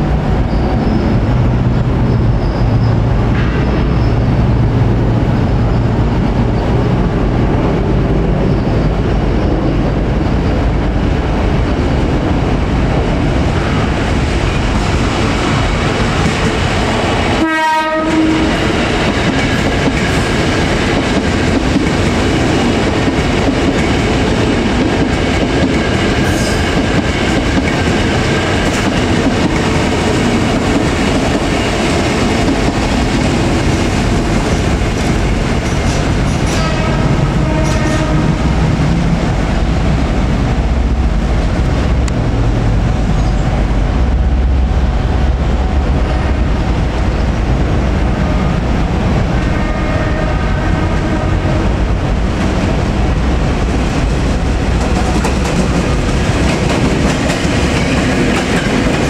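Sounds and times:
trains rumbling past on track: 0:00.0 - 0:59.0.

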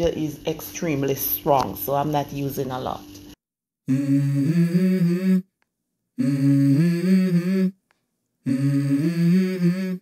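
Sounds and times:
hummed vocal melody: 0:03.8 - 0:05.6, 0:06.2 - 0:10.0.

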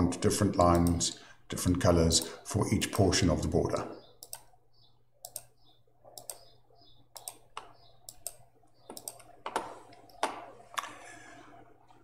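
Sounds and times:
computer mouse clicking: 0:00.7 - 0:01.1, 0:04.2 - 0:04.6, 0:05.2 - 0:10.4.

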